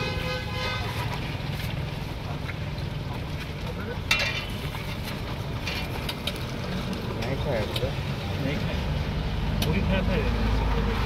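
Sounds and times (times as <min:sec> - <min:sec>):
traffic rumble: 0:00.0 - 0:11.0
metal utensil clinking against pot: 0:04.0 - 0:05.0.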